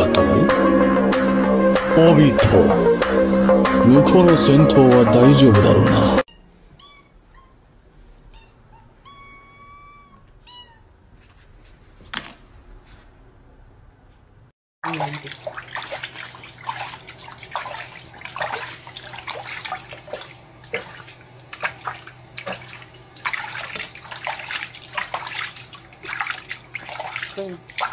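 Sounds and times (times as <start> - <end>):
kitten mewing: 8.3 - 10.9
low steady hum: 13.4 - 27.9
water splashing in a basin: 14.8 - 27.9.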